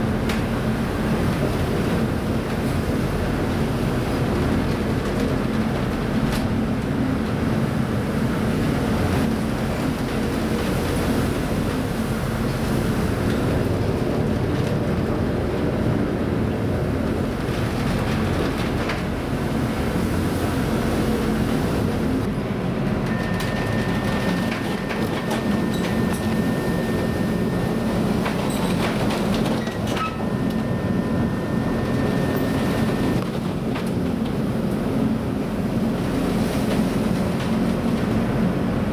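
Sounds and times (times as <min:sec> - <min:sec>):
ship machinery rumble: 0:00.0 - 0:38.9
stormy sea: 0:00.0 - 0:38.9
high steady tone: 0:23.0 - 0:28.4, 0:29.7 - 0:33.2.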